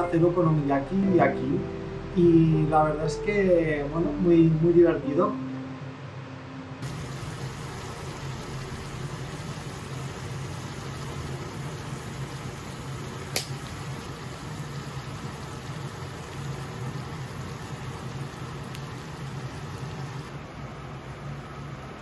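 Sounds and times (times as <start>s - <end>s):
low hum: 0.0s - 11.0s
food sizzling on a griddle: 6.8s - 20.3s
sharp click: 13.3s - 13.6s.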